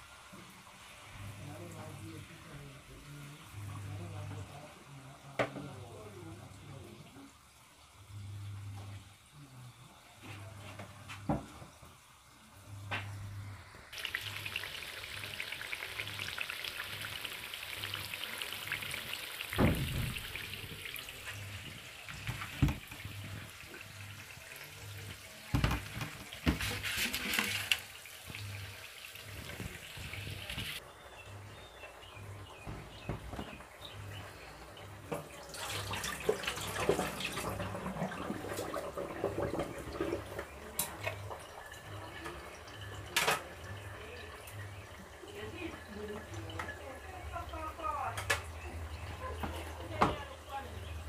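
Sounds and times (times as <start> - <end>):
kitchen tap running: 13.7 - 30.8, 31.5 - 51.0.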